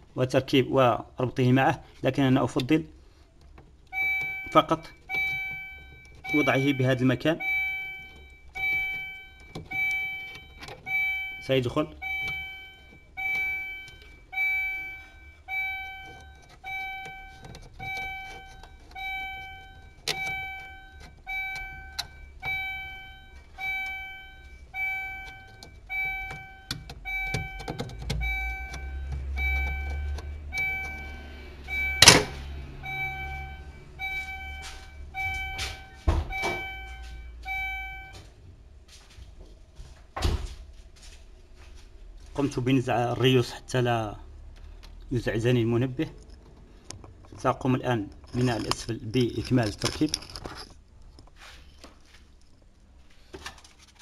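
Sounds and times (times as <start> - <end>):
reversing warning buzzer beeping: 3.9 - 38.3
clicks and knocks of handling: 16.0 - 19.0, 25.2 - 31.0, 46.0 - 52.7, 53.3 - 54.0.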